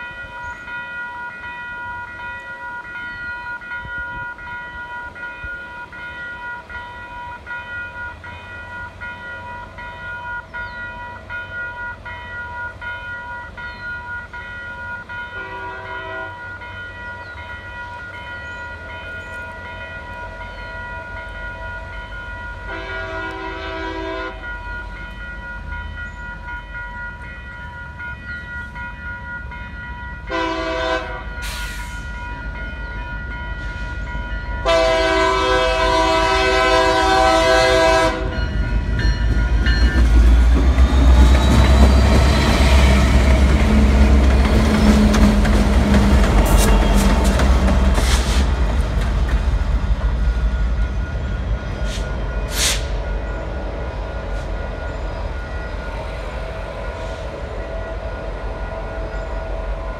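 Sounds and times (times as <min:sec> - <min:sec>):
crossing bell ringing: 0:00.0 - 0:59.9
engine rumble and rail noise: 0:00.0 - 0:59.9
locomotive horn: 0:15.2 - 0:16.6, 0:22.5 - 0:24.5, 0:30.2 - 0:32.1, 0:34.6 - 0:38.6, 0:41.4 - 0:48.6.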